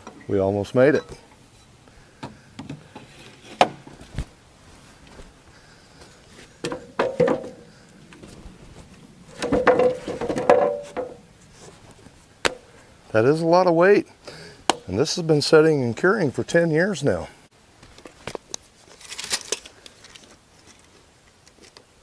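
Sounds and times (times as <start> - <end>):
wood log knocking: 6.6 - 7.6, 9.4 - 11.2.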